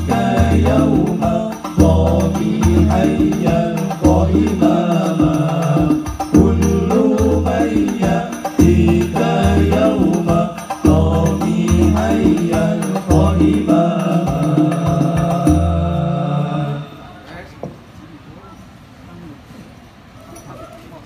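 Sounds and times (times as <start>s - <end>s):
deep drum beat: 0.0s - 16.1s
frame drums with jingles: 0.0s - 16.2s
men singing devotional song: 0.0s - 17.2s.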